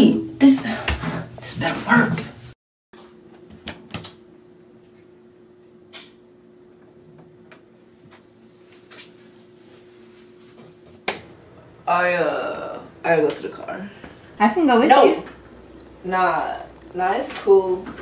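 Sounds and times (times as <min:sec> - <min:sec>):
low hum: 0:09.7 - 0:18.0.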